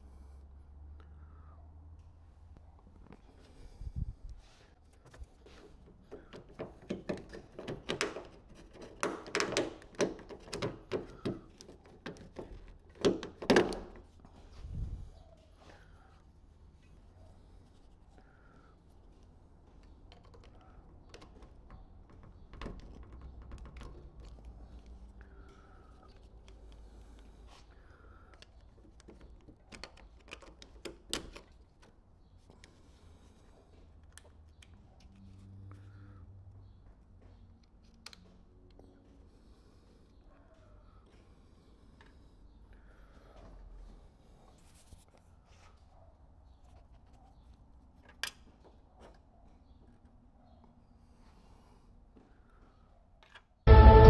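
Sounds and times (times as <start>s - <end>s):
plastic door handle clicks and knocks: 6.1s - 14.1s.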